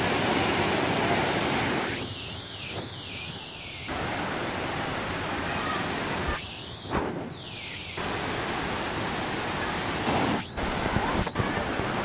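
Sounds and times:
water rushing over rocks: 3.9s - 6.4s, 8.0s - 12.0s.

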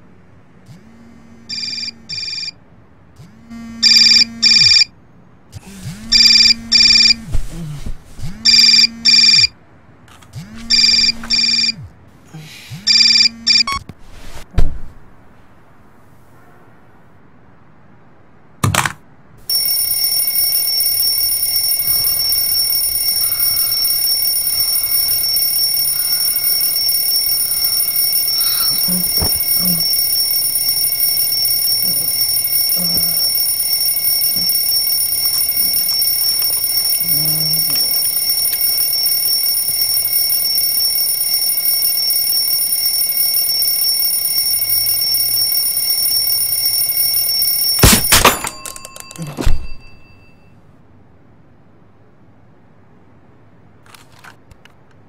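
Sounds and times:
high-pitched alarm tone: 1.5s - 2.6s, 3.6s - 4.9s, 6.0s - 7.3s, 8.4s - 9.5s, 10.6s - 11.9s, 12.9s - 13.8s, 19.5s - 50.5s
alarm clock click: 19.5s - 50.0s.

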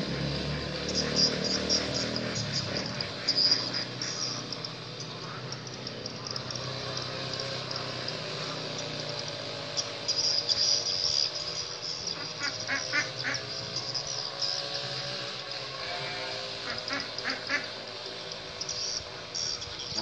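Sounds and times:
insects chirring: 0.3s - 20.0s
duck quacking: 0.6s - 4.4s, 12.2s - 13.6s, 16.6s - 17.8s.

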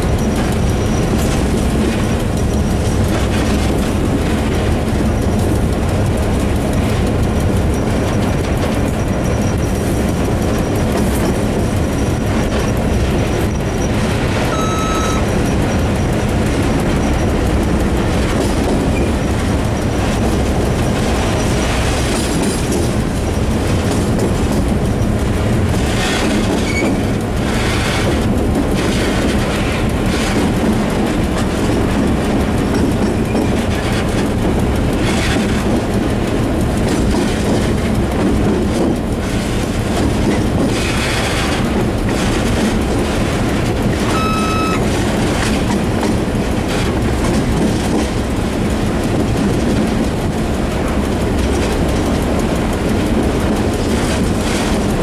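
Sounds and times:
diesel locomotive engine drone: 0.0s - 55.0s
wheels clattering over rail joints: 0.0s - 55.0s
high wheel squeal: 10.5s - 16.1s, 44.1s - 44.8s.

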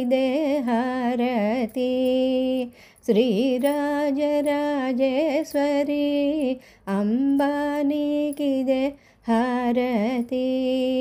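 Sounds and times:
woman singing devotional song: 0.0s - 11.0s.

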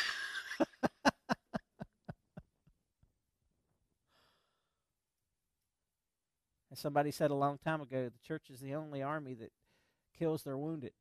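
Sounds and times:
man laughing: 0.0s - 2.6s.

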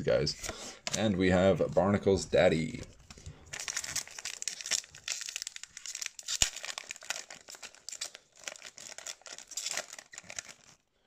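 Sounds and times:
foil wrapper crinkling: 2.9s - 10.8s
foil wrapper tearing: 3.1s - 10.8s.

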